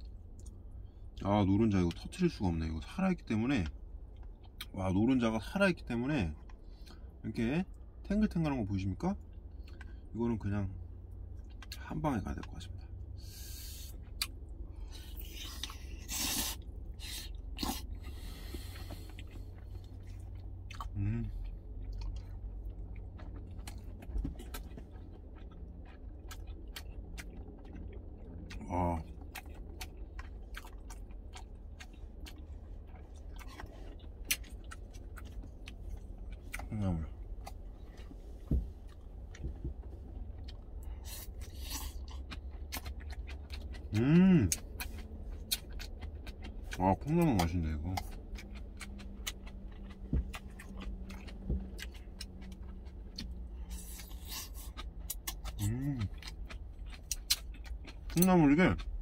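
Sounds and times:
man chewing wetly: 0.0s - 1.2s, 9.2s - 10.1s, 12.8s - 59.0s
steady low hum: 0.0s - 59.0s
man humming mm: 21.0s - 21.3s.

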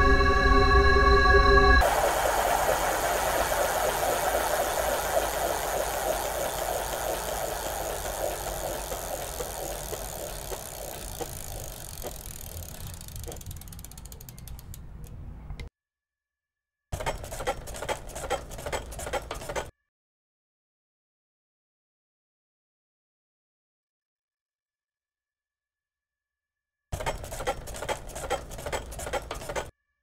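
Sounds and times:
dense crackling rattling noise: 1.8s - 14.8s.

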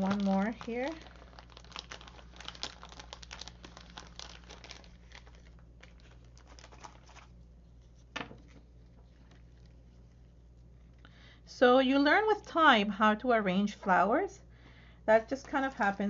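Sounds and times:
plastic packaging crinkling: 0.0s - 10.9s, 15.2s - 16.0s.

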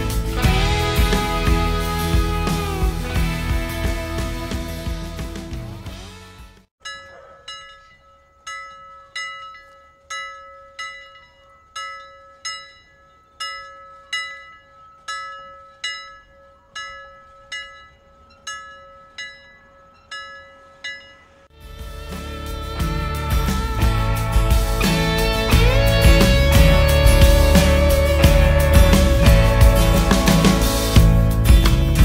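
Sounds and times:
cathedral bells ringing: 6.8s - 31.9s.

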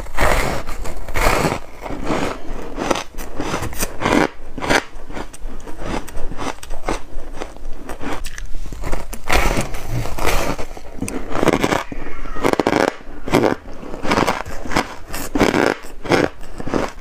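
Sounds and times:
chewing crunchy ice: 0.0s - 17.0s.

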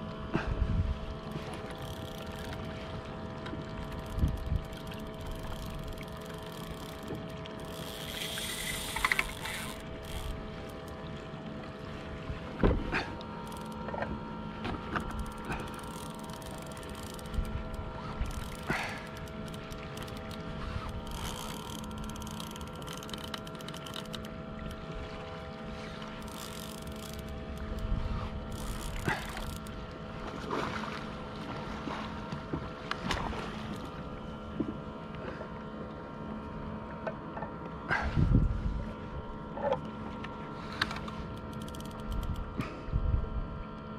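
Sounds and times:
wind on microphone: 0.4s - 1.2s, 4.1s - 4.7s, 38.0s - 39.0s, 42.2s - 43.6s
fishing reel whirring: 1.0s - 11.9s, 13.2s - 31.0s, 38.9s - 42.8s
water sloshing against kayak hull: 1.1s - 35.5s
fishing reel clicking: 1.3s - 2.7s, 3.5s - 11.0s, 13.4s - 13.9s, 14.9s - 24.8s, 26.0s - 29.8s, 40.8s - 42.5s.

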